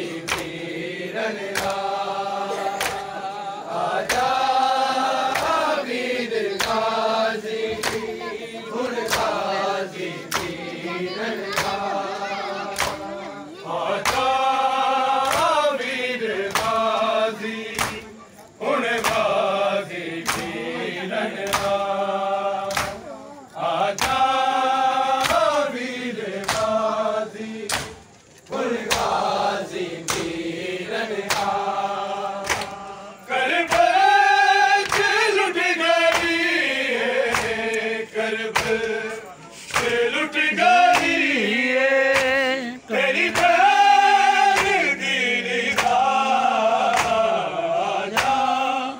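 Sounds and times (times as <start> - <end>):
men chanting in unison: 0.0 - 48.9
hand slaps on bare chests: 0.2 - 0.7, 1.4 - 2.0, 2.6 - 3.2, 4.0 - 4.5, 5.2 - 5.8, 6.5 - 7.0, 7.7 - 8.2, 9.0 - 9.5, 10.2 - 10.6, 11.4 - 13.2, 13.9 - 14.5, 15.1 - 15.6, 16.4 - 17.1, 17.7 - 18.2, 18.9 - 19.4, 20.2 - 20.6, 21.4 - 21.9, 22.7 - 23.1, 23.8 - 25.7, 26.3 - 26.9, 27.6 - 30.5, 31.2 - 32.9, 33.6 - 34.2, 34.8 - 35.3, 36.0 - 36.5, 37.2 - 37.8, 38.5 - 40.1, 40.8 - 41.3, 42.1 - 42.4, 43.2 - 44.9, 45.6 - 46.1, 46.8 - 47.4, 48.1 - 48.5.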